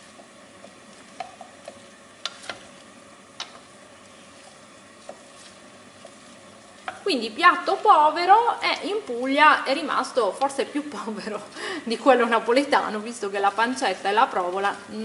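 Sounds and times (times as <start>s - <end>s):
potatoes sizzling in oil: 0.0s - 15.0s
wooden spatula stirring: 0.0s - 15.0s
wood clicking against pot: 0.1s - 3.8s, 5.0s - 7.1s.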